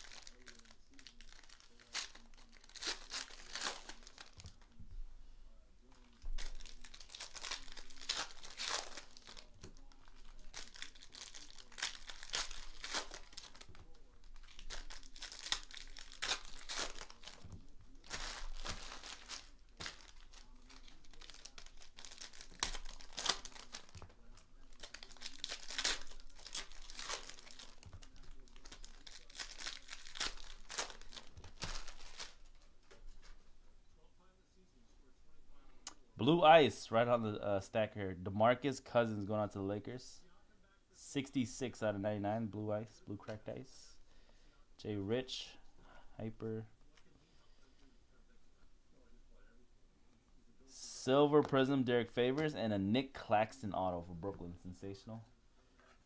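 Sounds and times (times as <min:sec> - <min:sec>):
foil wrappers tearing and crinkling: 0:00.0 - 0:04.7, 0:06.3 - 0:32.6.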